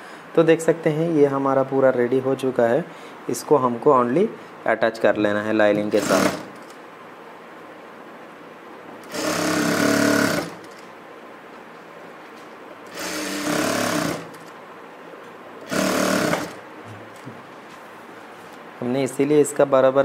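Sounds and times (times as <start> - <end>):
sewing machine stitching: 5.8 - 6.7, 9.0 - 10.8, 12.9 - 14.5, 15.6 - 16.6.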